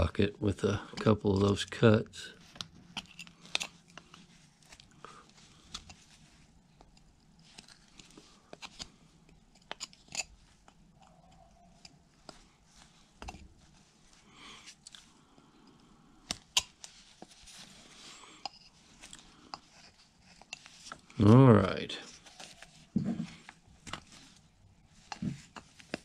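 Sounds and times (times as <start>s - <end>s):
knife carving wood: 2.4s - 13.8s, 16.2s - 21.2s.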